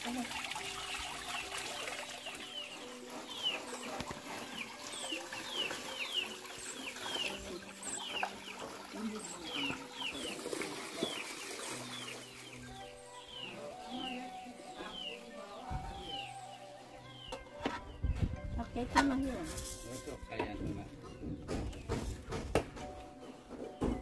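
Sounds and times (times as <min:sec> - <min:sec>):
chicks peeping: 0:02.2 - 0:16.4
water splashing into a basket: 0:03.6 - 0:12.4.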